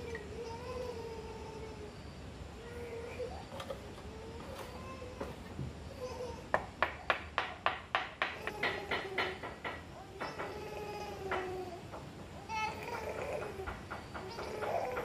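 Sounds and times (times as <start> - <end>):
tool tapping tile into mortar: 6.5 - 10.6.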